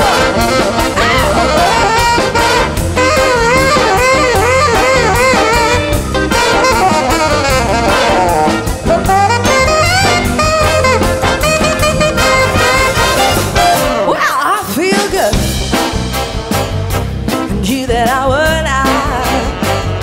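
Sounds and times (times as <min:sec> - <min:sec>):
alto saxophone solo: 0:00.0 - 0:14.2, 0:18.7 - 0:20.0
big band brass: 0:00.0 - 0:20.0
drums keeping a beat: 0:00.0 - 0:20.0.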